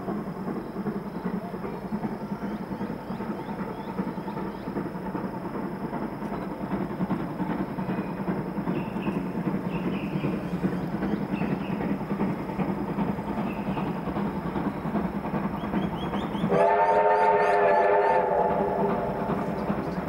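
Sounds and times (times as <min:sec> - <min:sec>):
train rumbling: 0:00.0 - 0:20.0
locomotive whistle: 0:15.6 - 0:19.3.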